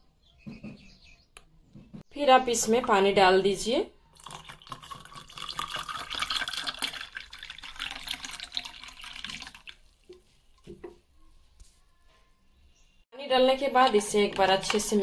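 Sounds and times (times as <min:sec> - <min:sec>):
water pouring into glass: 0:04.1 - 0:10.2.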